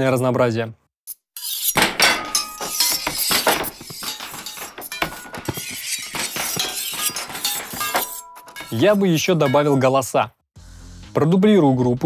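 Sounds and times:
metal blades clashing: 0:01.6 - 0:09.9.

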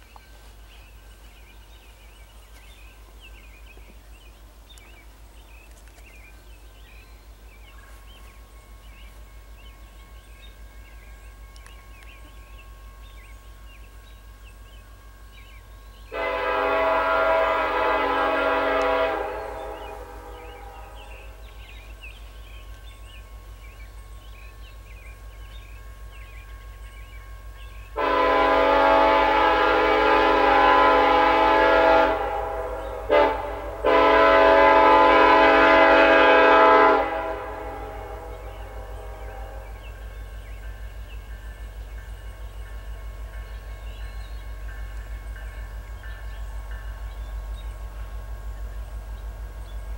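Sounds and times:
distant train rumble: 0:00.0 - 0:49.9
locomotive air horn blasts: 0:16.1 - 0:21.4, 0:28.0 - 0:39.8.

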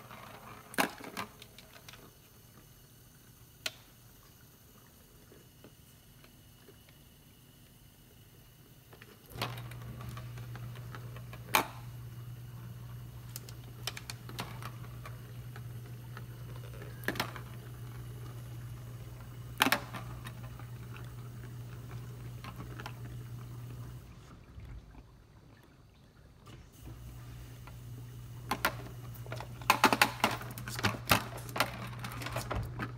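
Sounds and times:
low steady hum: 0:00.0 - 0:32.9.

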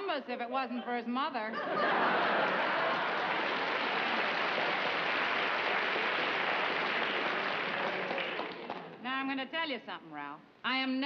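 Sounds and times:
studio audience applauding: 0:02.3 - 0:09.0.

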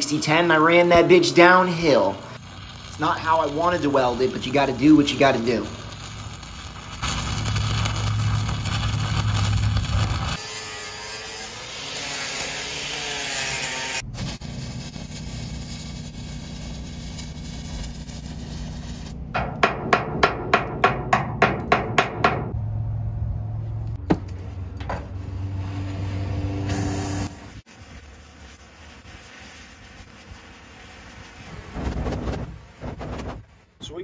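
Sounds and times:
welder engine running: 0:00.0 - 0:13.0, 0:22.2 - 0:33.2
welding arc crackling: 0:00.0 - 0:19.3, 0:24.2 - 0:34.0
hammer strikes on steel: 0:19.3 - 0:22.6.

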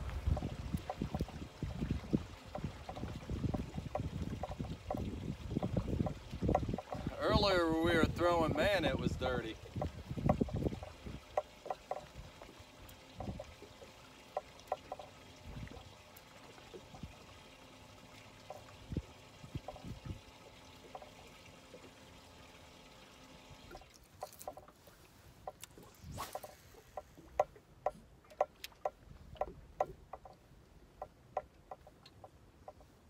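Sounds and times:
steady electric motor hum: 0:00.0 - 0:23.9
water lapping against boat hull: 0:00.0 - 0:33.0.

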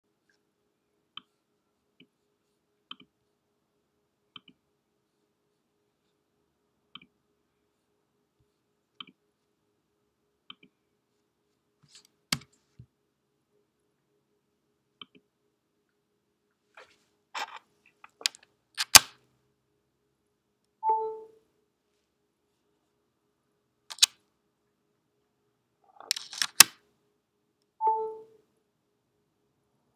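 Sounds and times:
faint steady hum: 0:00.1 - 0:26.1
trackpad clicks: 0:23.9 - 0:24.1.

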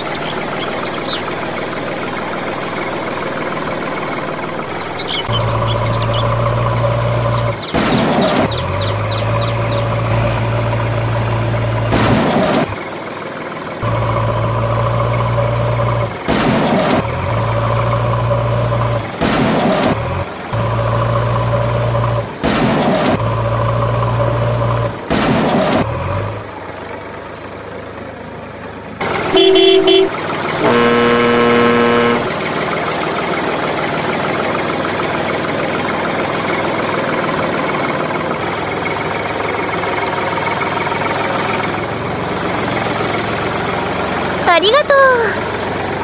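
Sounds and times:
heavy truck engine running: 0:00.0 - 0:46.0
truck horn: 0:29.0 - 0:34.8.

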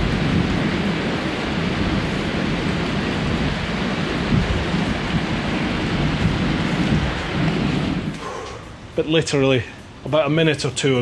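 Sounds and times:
low thunder rumble: 0:00.0 - 0:09.0
heavy rain: 0:00.0 - 0:11.0.

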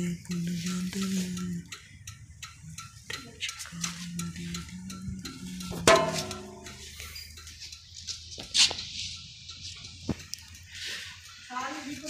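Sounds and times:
light ticking: 0:00.0 - 0:12.0
sharp metallic clank: 0:05.8 - 0:06.8.

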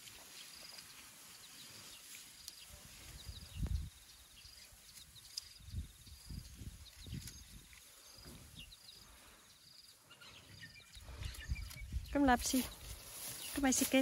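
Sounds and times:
high insect trills: 0:00.0 - 0:14.0.

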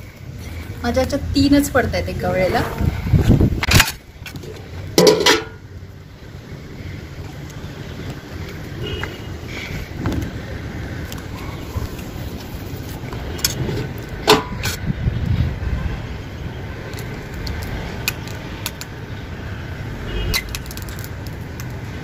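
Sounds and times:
steady low rumble: 0:00.0 - 0:08.7.

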